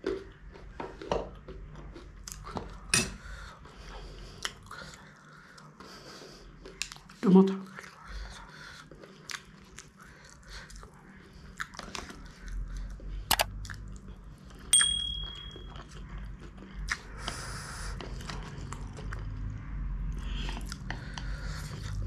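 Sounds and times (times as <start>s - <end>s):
chewing and slurping noodles: 0.0s - 14.7s, 15.8s - 22.0s
ringing metal clink: 14.8s - 15.8s.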